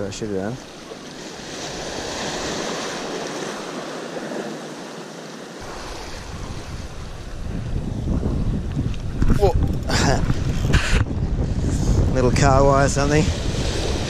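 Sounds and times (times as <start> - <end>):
waves washing over rocks: 0.0 - 7.4, 12.8 - 14.0
wind rumbling on microphone: 5.6 - 14.0.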